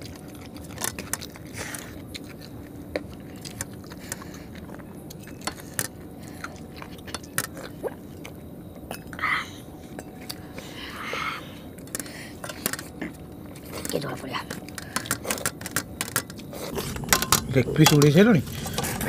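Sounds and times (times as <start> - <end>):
chewing and lip smacks: 0.0 - 9.2
drinking from steel tumbler: 16.7 - 19.0.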